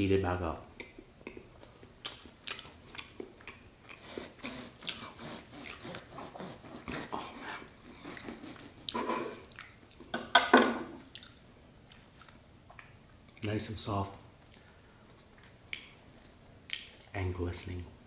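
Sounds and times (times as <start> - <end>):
chewing: 0.8 - 6.1, 6.8 - 10.1, 11.0 - 13.4, 14.4 - 17.1
bread knife sawing: 4.0 - 8.8.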